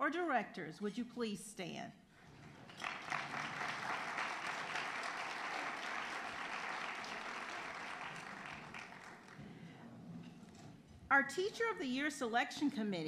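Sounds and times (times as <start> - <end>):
audience applauding: 2.4 - 9.5.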